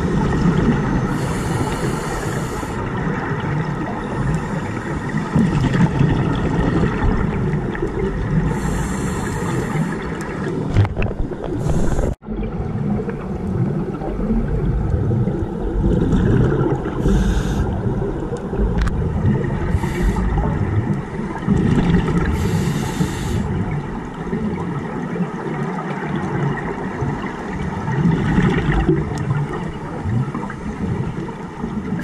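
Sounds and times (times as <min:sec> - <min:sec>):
underwater exhaust bubbles rumbling: 0:00.0 - 0:32.0
regulator breath hisses: 0:01.1 - 0:02.8, 0:08.5 - 0:10.2, 0:17.0 - 0:17.8, 0:19.7 - 0:20.4, 0:22.4 - 0:23.5.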